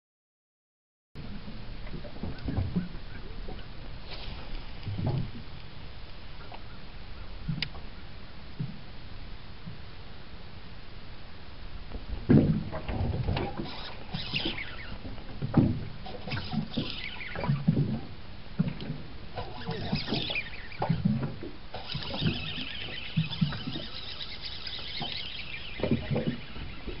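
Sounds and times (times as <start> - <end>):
thumps and knocks on boat: 12.2 - 13.6, 15.1 - 15.9.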